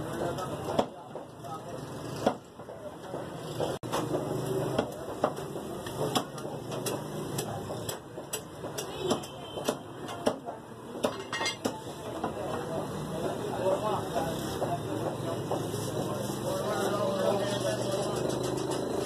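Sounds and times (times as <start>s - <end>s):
cleaver chopping meat on wood: 0.6s - 1.3s, 2.1s - 15.7s.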